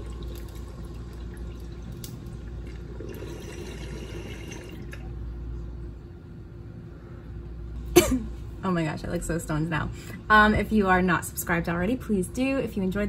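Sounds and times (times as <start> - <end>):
water bubbling in a bong: 0.0 - 5.2.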